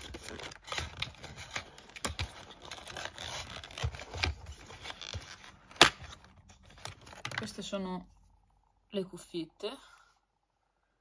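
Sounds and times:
cardboard rustling and scraping: 0.0s - 7.6s.

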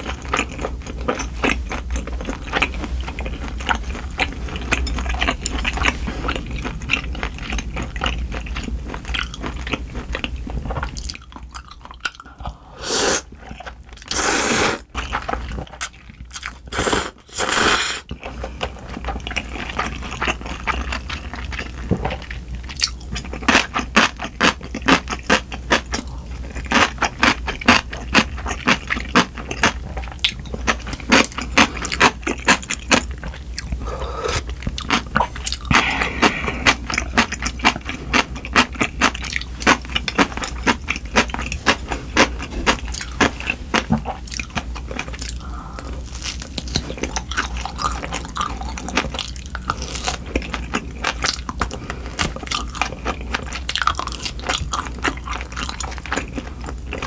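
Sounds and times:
crunchy chewing: 0.0s - 57.0s
slurping noodles: 12.6s - 13.3s, 14.0s - 14.9s, 16.7s - 18.1s, 33.8s - 34.5s, 35.6s - 37.4s.

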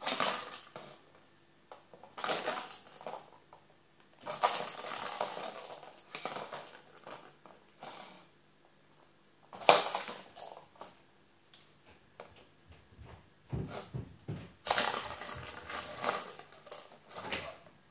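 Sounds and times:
plastic balls rattling in toy track: 2.1s - 3.4s, 4.2s - 7.3s, 14.6s - 17.5s.

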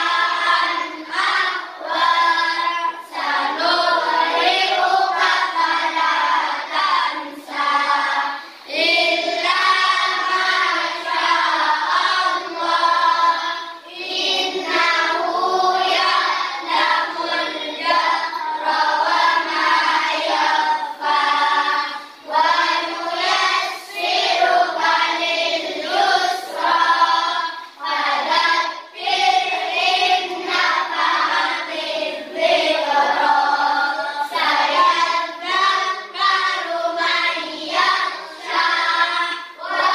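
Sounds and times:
children singing: 0.0s - 39.9s.

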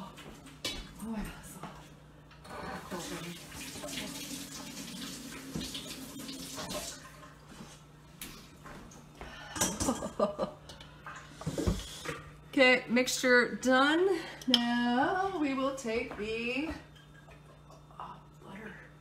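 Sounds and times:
water running from tap: 2.5s - 7.6s.

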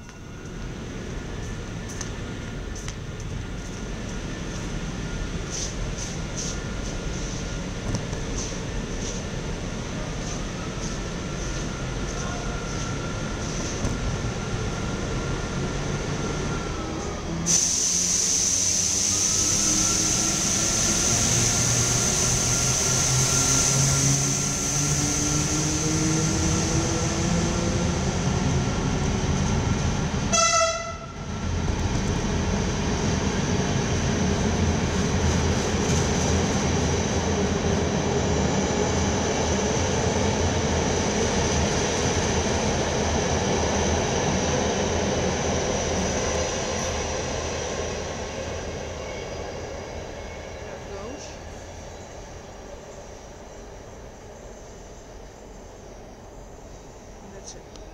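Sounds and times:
train coaches rolling: 0.0s - 30.3s
train horn blast: 30.3s - 31.3s.

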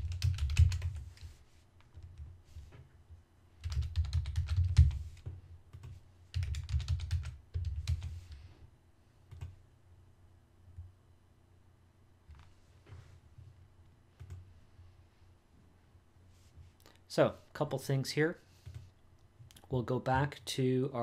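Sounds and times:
computer keyboard typing: 0.0s - 2.3s, 3.6s - 8.3s.

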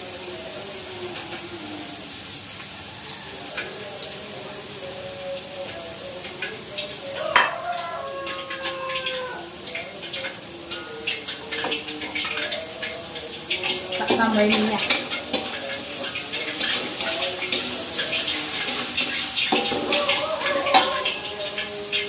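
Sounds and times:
food sizzling in oil: 0.0s - 22.0s
utensil clattering against pan: 13.6s - 22.0s
spatula scraping a pan: 14.6s - 22.0s.

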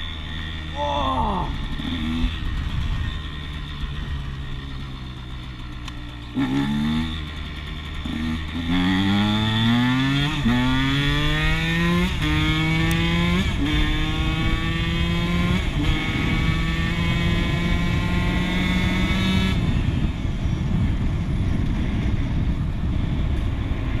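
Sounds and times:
dirt bike engine accelerating: 0.0s - 24.0s
wind and road noise: 0.0s - 24.0s.

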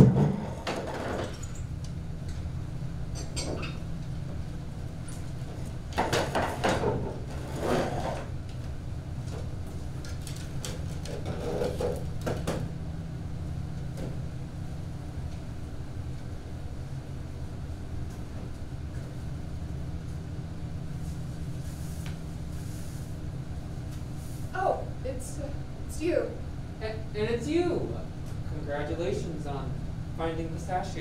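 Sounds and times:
wooden furniture knocking and scraping: 0.0s - 1.3s
steady low hum: 0.0s - 31.0s.

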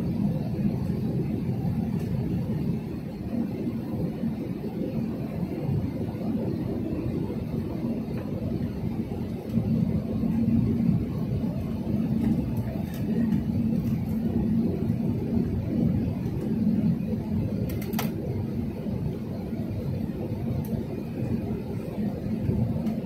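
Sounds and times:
airliner cabin engine rumble: 0.0s - 23.0s
faint hum: 0.0s - 23.0s.

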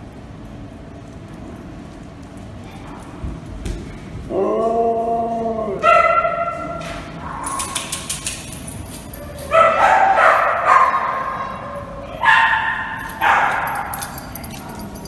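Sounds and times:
dog barking: 5.8s - 7.8s, 9.5s - 14.1s.

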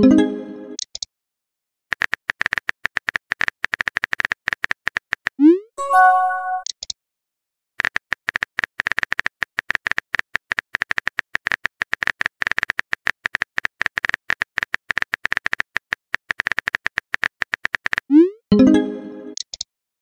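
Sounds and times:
electronic message sent chime: 5.8s - 6.6s.

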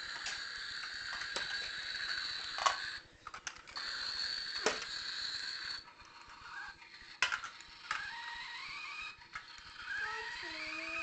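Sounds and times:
plastic toy pieces knocking: 0.1s - 3.9s, 4.5s - 5.1s, 6.9s - 8.2s.

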